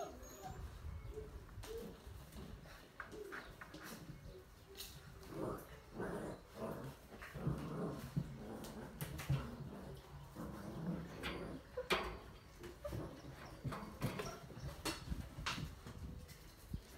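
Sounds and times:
puppies making low vocal sounds: 0.0 - 16.9.

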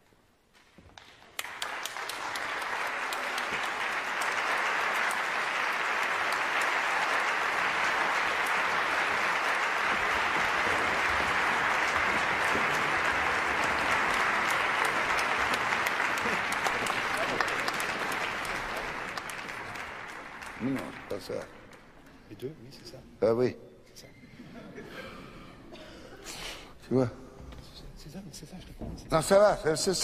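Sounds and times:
audience applause: 1.0 - 22.0.

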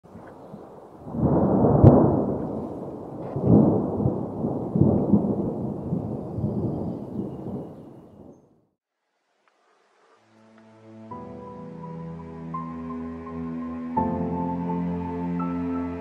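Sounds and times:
thunder crack and rumble: 0.1 - 8.5.

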